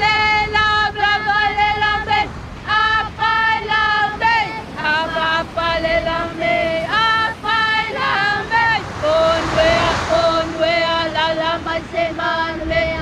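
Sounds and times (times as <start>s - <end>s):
high voices singing: 0.0s - 13.0s
steady rushing noise: 0.0s - 13.0s.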